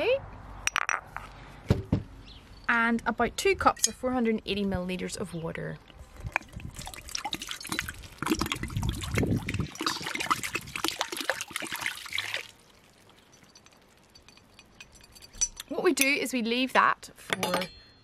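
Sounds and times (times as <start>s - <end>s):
water pouring into a pot: 6.2s - 15.3s.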